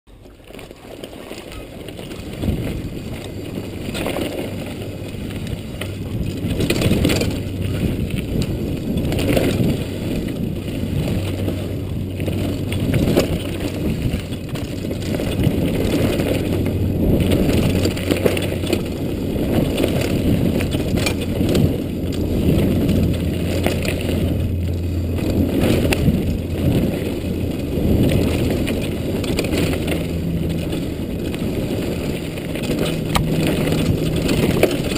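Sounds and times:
bike clattering over bumps: 0.1s - 34.9s
tyres rumbling on dirt: 0.1s - 34.9s.

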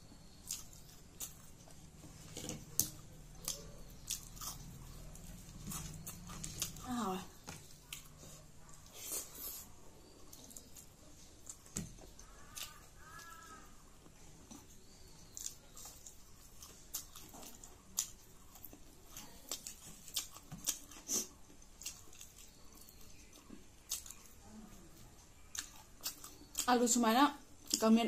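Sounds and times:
chewing and mouth smacks: 0.4s - 6.8s, 14.4s - 24.4s, 25.2s - 26.7s.

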